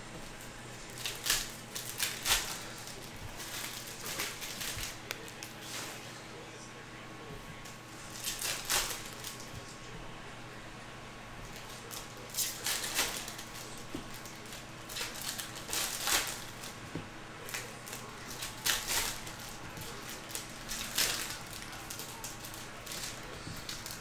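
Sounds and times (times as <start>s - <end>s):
foil wrappers crinkling: 0.3s - 6.1s, 8.0s - 9.6s, 11.5s - 24.0s.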